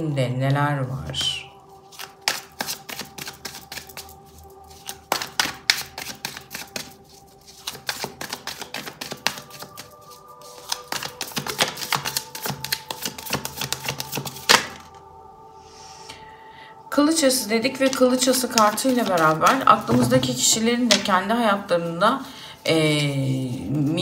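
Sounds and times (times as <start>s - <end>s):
cards being shuffled: 1.9s - 14.9s, 17.9s - 21.1s
card snap: 10.6s - 14.8s.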